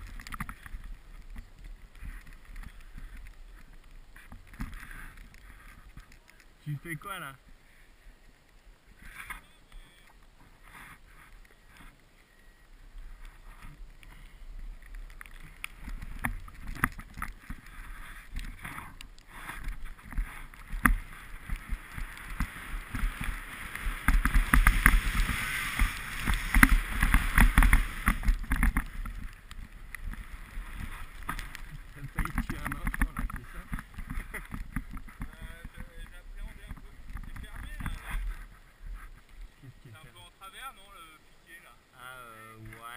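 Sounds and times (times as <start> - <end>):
snow scraping under sled: 10.4 - 12.0, 15.4 - 39.2.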